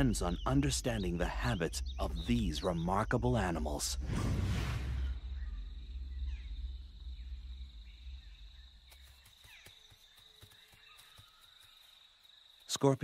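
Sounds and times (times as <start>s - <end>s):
low rumble: 0.0s - 8.9s.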